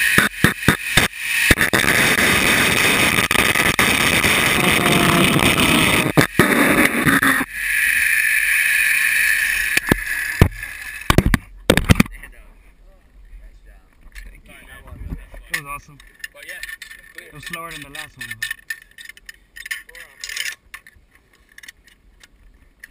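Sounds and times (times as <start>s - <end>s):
zipline trolley whirring on cable: 7.3s - 11.1s
wind rushing over microphone: 14.8s - 15.3s.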